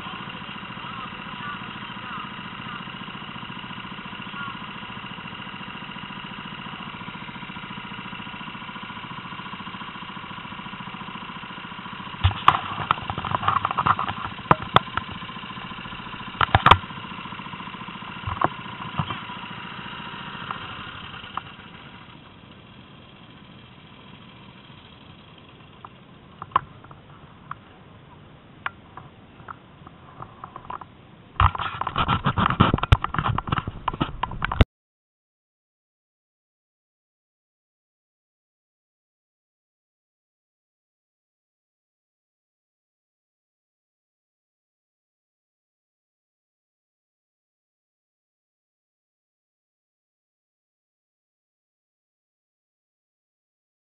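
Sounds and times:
go-kart engines running: 0.0 - 34.6
knocks and clatter: 30.4 - 34.6.

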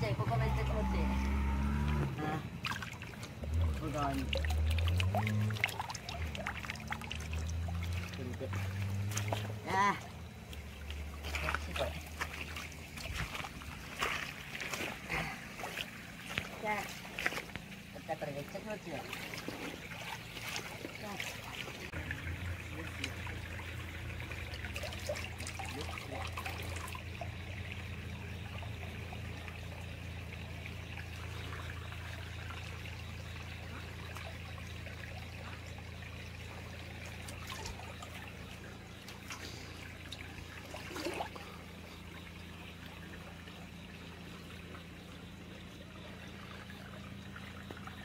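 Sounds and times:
stream water trickling: 0.0 - 48.0
knocks or splashes: 1.3 - 28.0, 31.0 - 41.9.

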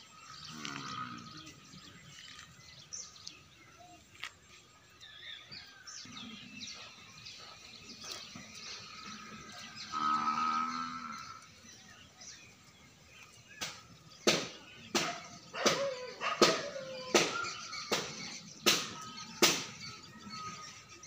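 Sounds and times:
outdoor background noise: 0.0 - 21.0
small birds chirping: 0.0 - 21.0.

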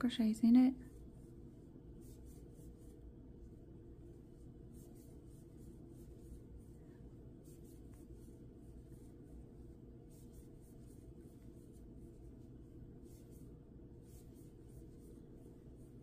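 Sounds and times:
low room hum: 0.0 - 16.0
yarn rustling over crochet hook: 7.3 - 16.0.

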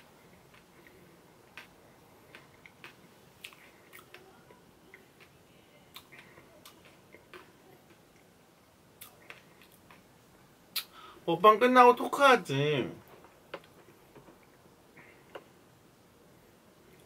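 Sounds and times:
mouth clicks and lip smacks: 0.3 - 4.3, 5.9 - 8.3, 9.0 - 10.1, 10.7 - 11.0.

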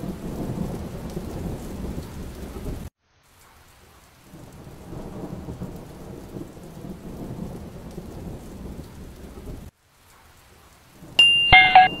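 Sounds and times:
low rumbling thunder: 0.0 - 2.9, 4.4 - 9.7
steady rain: 0.0 - 12.0
bright chime: 11.2 - 12.0.

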